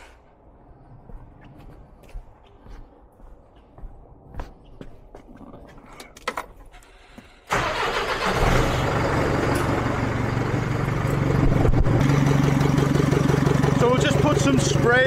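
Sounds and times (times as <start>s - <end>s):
diesel engine starter cranking: 6.7s - 14.8s
truck engine idling: 7.5s - 15.0s.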